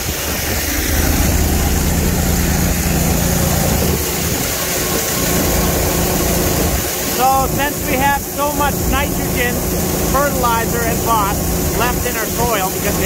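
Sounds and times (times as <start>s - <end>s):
wind on microphone: 0.0s - 7.1s
engine humming: 0.0s - 13.0s
fertilizer pouring from auger: 0.1s - 13.0s.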